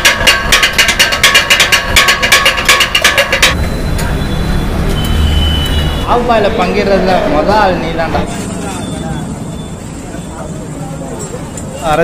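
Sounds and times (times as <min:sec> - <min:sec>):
steel blades striking a griddle: 0:00.0 - 0:03.6.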